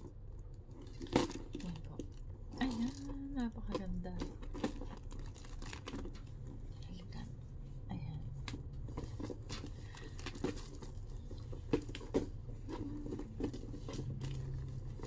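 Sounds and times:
low steady hum: 0:00.0 - 0:15.0
bag strap clicks and rustles: 0:03.7 - 0:06.6, 0:08.4 - 0:15.0.

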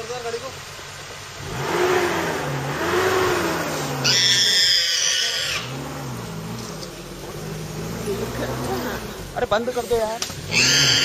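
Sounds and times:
vehicle engine running: 0:00.0 - 0:11.0
wild boar distress squeal: 0:04.0 - 0:05.8, 0:10.5 - 0:11.0.

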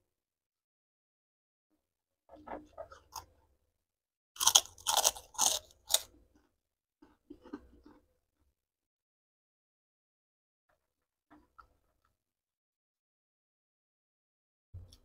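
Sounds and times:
loud crisp crunches: 0:04.4 - 0:06.1.

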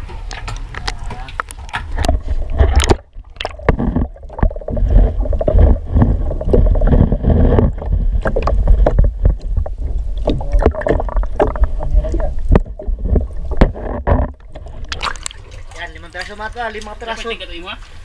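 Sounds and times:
sharp knocks and bumps: 0:00.0 - 0:15.1
muffled water sloshing: 0:00.0 - 0:17.2
heavy low rumble: 0:01.9 - 0:15.0.

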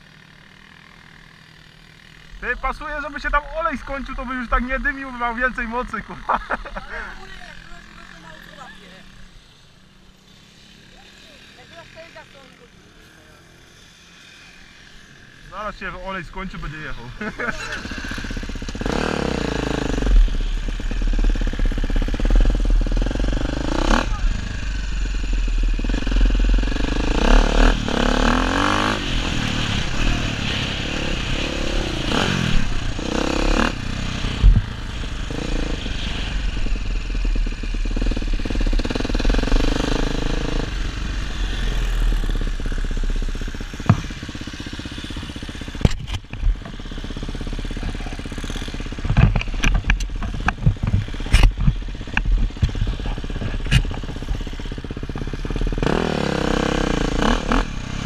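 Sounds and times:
dirt bike engine revving: 0:00.0 - 0:58.0
sharp knocks and clatter: 0:43.8 - 0:44.3, 0:48.9 - 0:54.4.

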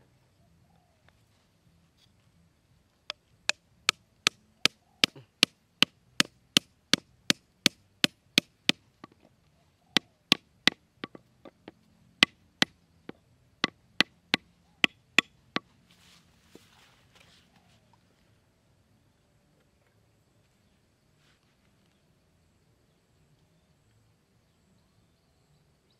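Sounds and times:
hammer striking wooden stake: 0:03.1 - 0:09.3, 0:10.0 - 0:15.7.

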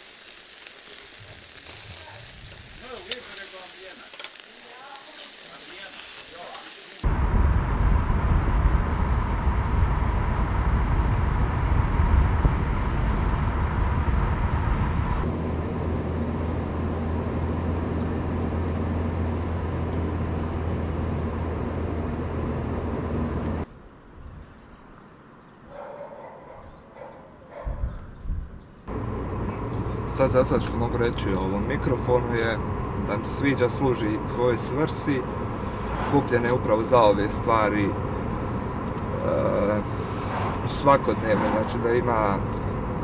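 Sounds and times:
outdoor ambience: 0:00.0 - 0:43.0
road and engine noise in car: 0:07.0 - 0:23.7, 0:28.8 - 0:43.0
dog barking faintly: 0:25.7 - 0:28.0.

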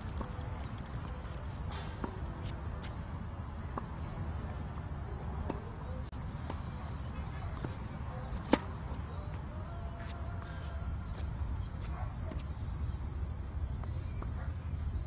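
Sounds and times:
tennis racket hitting ball: 0:07.6 - 0:08.8.

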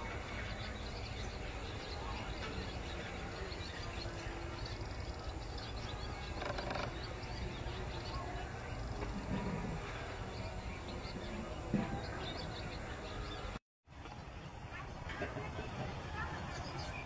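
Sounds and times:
swallows twittering: 0:00.0 - 0:13.6.

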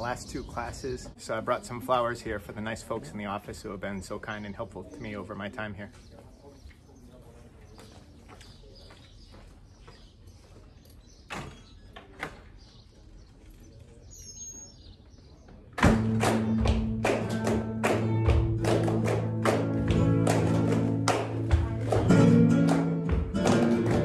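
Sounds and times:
bird chirping: 0:03.6 - 0:15.8
faint footsteps: 0:05.9 - 0:11.3
strummed flamenco guitar music: 0:15.8 - 0:24.0.

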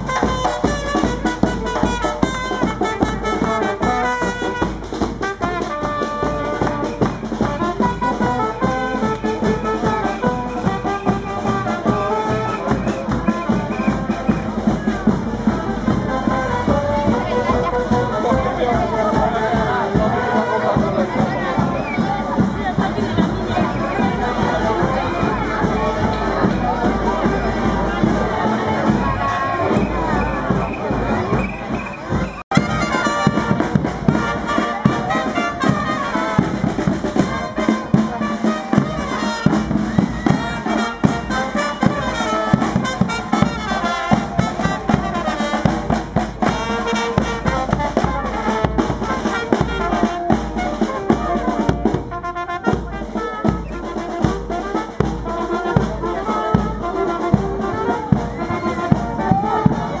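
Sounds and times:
bass drum: 0:00.0 - 1:00.0
brass and saxophone: 0:00.0 - 1:00.0
snare drum: 0:00.0 - 1:00.0.

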